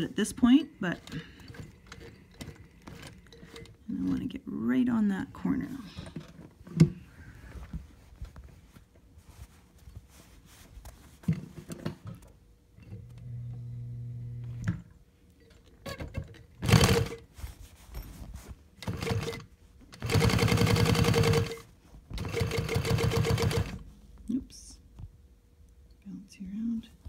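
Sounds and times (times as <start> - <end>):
low motor hum: 12.8 - 15.0
sewing machine stitching: 15.9 - 17.2, 18.8 - 23.8.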